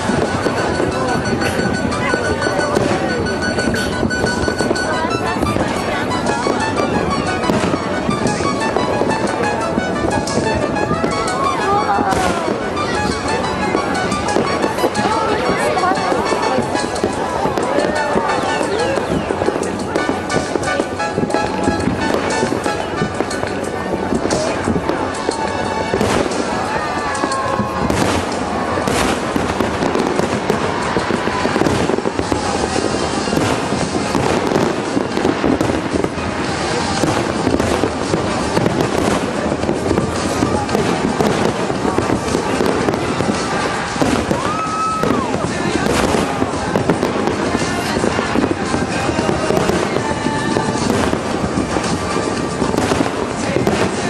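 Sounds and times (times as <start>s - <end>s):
fireworks bursting: 0.0s - 54.0s.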